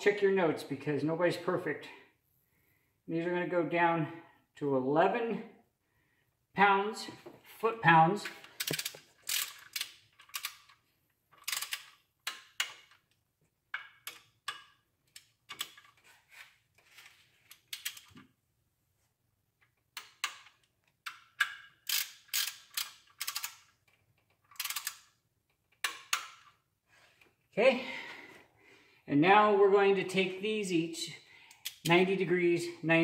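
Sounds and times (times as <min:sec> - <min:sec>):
ratchet wrench clicking: 0:08.6 - 0:10.8, 0:11.4 - 0:13.0, 0:21.3 - 0:23.7, 0:24.5 - 0:25.2.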